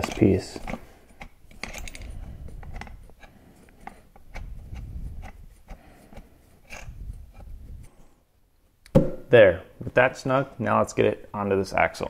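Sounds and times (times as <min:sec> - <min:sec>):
dull handling thumps: 0:08.9 - 0:10.0.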